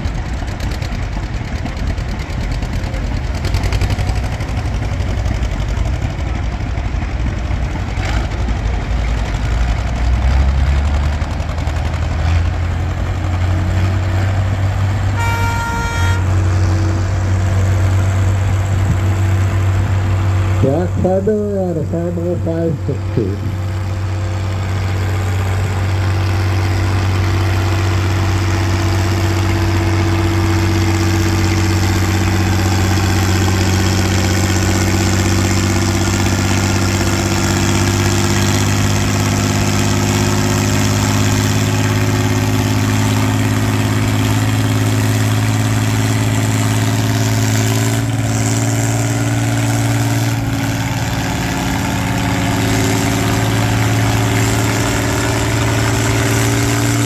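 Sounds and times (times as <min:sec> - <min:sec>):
tractor engine under load: 0:00.0 - 0:57.0.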